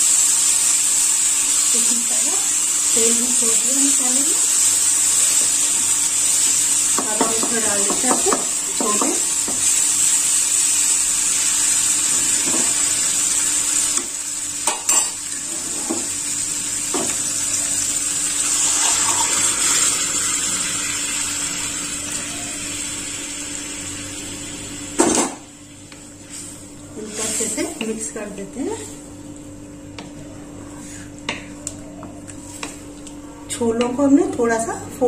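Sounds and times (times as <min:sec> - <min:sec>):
sauce sizzling in oil: 0:00.0 - 0:26.4
spoon knocking against pan: 0:07.0 - 0:09.2.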